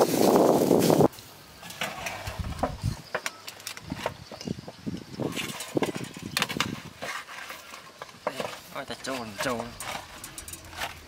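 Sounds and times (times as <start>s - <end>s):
metal utensils scraping on grill: 1.6s - 3.0s, 5.2s - 11.0s.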